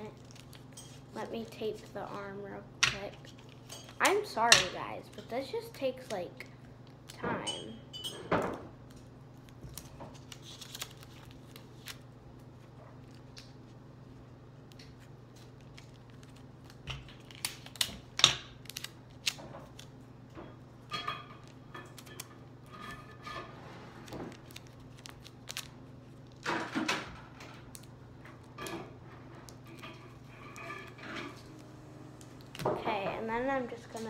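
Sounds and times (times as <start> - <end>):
paper and tape crinkling: 0.0 - 2.3, 8.8 - 20.0, 24.0 - 26.4.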